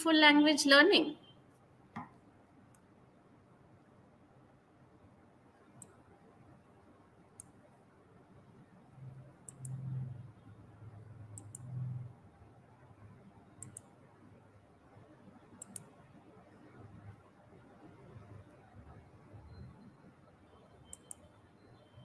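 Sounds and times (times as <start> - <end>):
faint sharp clicks: 9.4 - 9.8, 11.3 - 11.8, 13.6 - 13.9, 15.6 - 16.0, 20.9 - 21.3.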